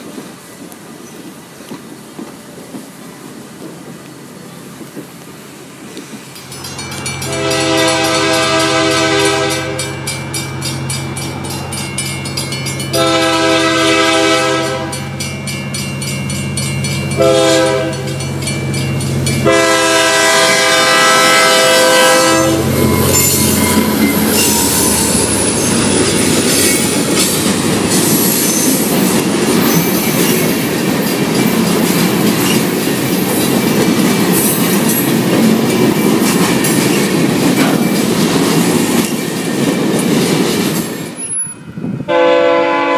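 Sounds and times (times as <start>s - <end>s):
train wheels clattering on rail: 0.0s - 41.6s
locomotive engine running: 6.4s - 40.7s
locomotive air horn: 7.2s - 10.0s, 12.9s - 15.2s, 17.2s - 18.2s, 19.4s - 25.6s, 42.1s - 42.9s.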